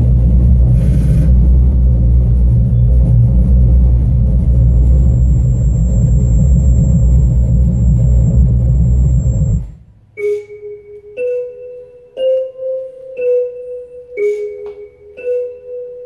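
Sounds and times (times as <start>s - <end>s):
deep rumbling music: 0.0s - 10.1s
ringing mallet notes: 10.2s - 16.0s.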